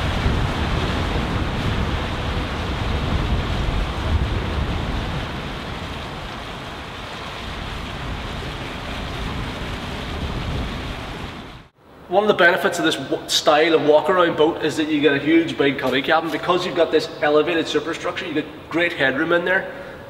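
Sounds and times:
wind buffeting microphone: 0:00.0 - 0:11.7
rushing water: 0:00.0 - 0:11.8.

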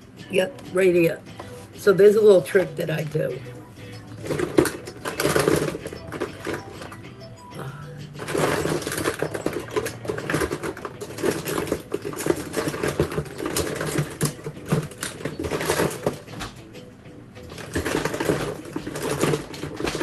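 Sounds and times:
plastic cases clattering: 0:02.6 - 0:07.1, 0:08.1 - 0:16.6, 0:17.5 - 0:20.0.

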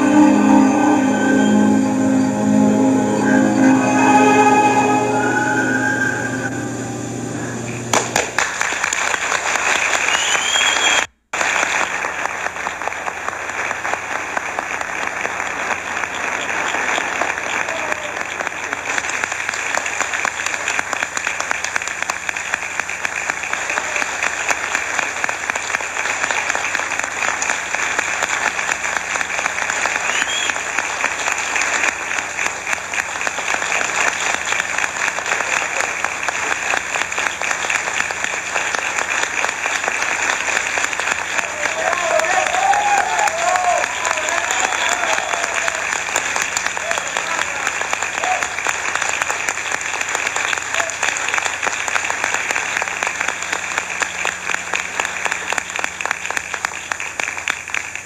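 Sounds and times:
music: 0:00.0 - 0:08.0
audience applauding: 0:00.0 - 0:58.0.

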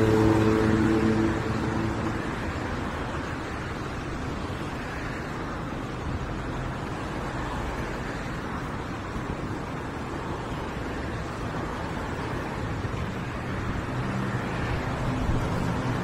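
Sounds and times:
road traffic noise: 0:00.0 - 0:16.0.

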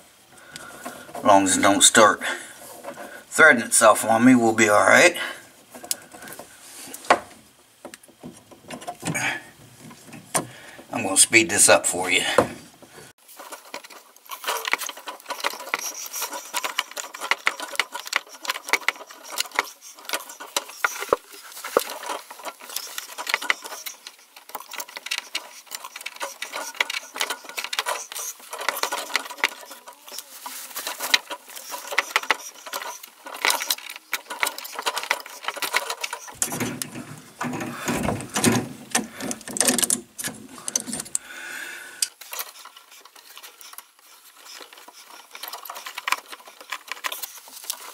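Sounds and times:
tubing cutter clicking and scraping: 0:13.4 - 0:41.4, 0:42.0 - 0:47.9.

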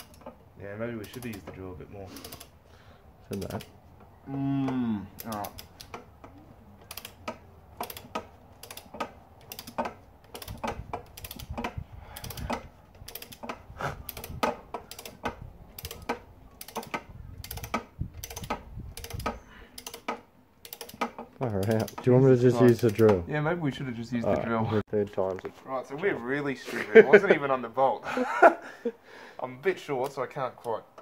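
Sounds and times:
ratcheting torque wrench clicking: 0:00.0 - 0:02.7, 0:03.3 - 0:03.7, 0:05.1 - 0:23.2.

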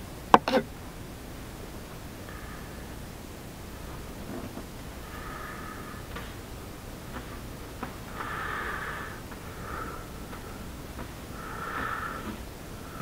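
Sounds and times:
man breathing through nose: 0:02.2 - 0:03.0, 0:05.0 - 0:06.4, 0:08.1 - 0:13.0.

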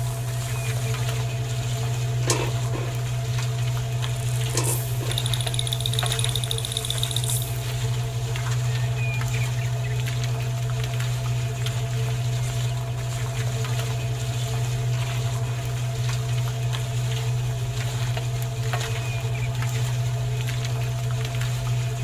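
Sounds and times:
small electric motor humming: 0:04.0 - 0:07.8.

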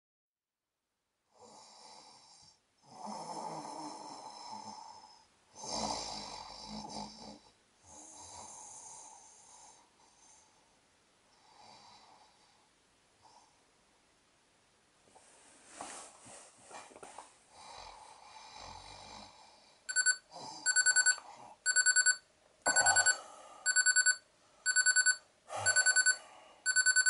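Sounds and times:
person snoring: 0:01.4 - 0:09.9, 0:17.5 - 0:21.6, 0:25.5 - 0:26.8.

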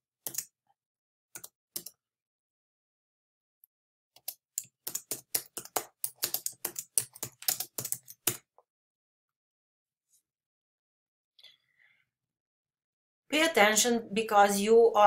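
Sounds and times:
computer keyboard typing: 0:00.2 - 0:00.5, 0:01.4 - 0:02.0, 0:04.2 - 0:08.5.

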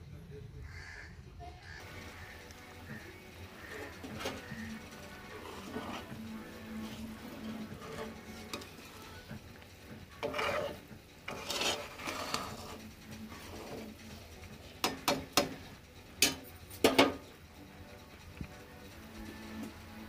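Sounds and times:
spoon stirring thick curry: 0:01.8 - 0:16.4
spoon scraping pan: 0:01.8 - 0:17.3.

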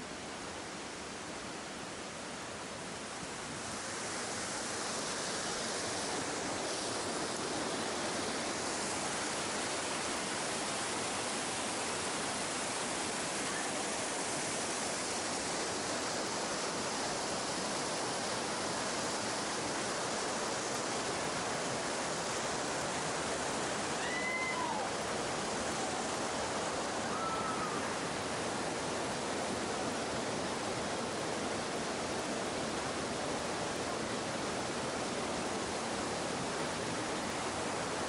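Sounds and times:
stream rushing over rocks: 0:00.0 - 0:38.0.

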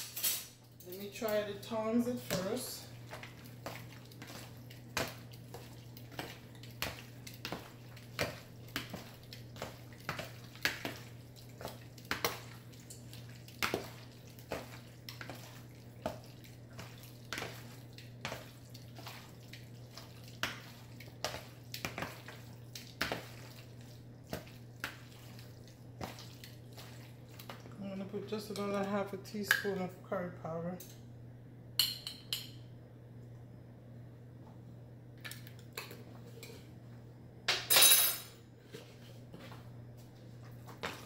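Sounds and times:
meat slapping in bowl: 0:01.0 - 0:27.8.

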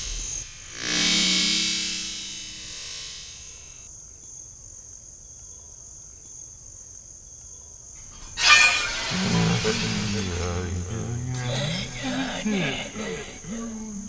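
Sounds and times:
crickets chirring: 0:00.0 - 0:14.0.

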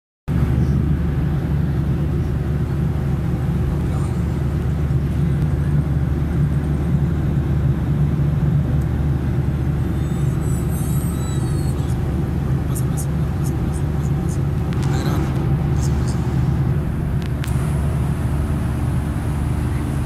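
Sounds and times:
airliner engines rumbling: 0:00.3 - 0:20.0
rushing air: 0:13.2 - 0:20.0.

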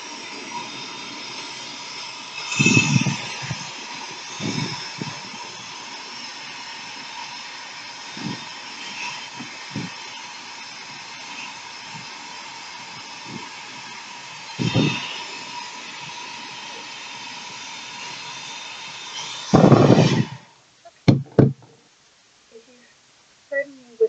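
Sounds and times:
hair dryer running: 0:00.0 - 0:20.5
short low thumps: 0:21.0 - 0:21.8.

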